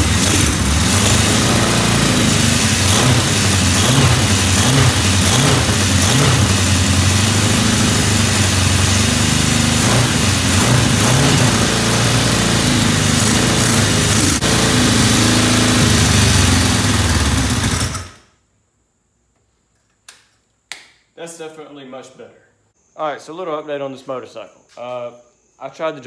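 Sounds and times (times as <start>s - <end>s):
motorcycle engine revving: 0.0s - 18.3s.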